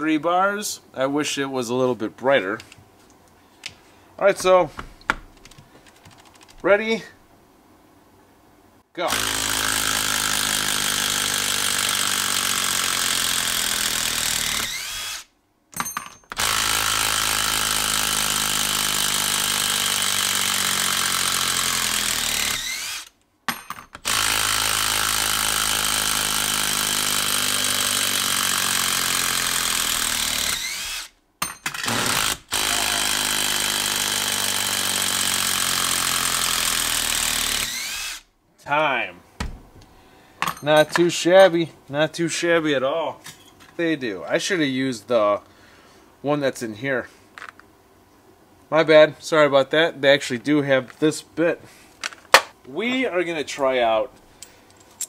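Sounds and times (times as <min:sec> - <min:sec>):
impact driver hammering: 0:15.8 - 0:38.2.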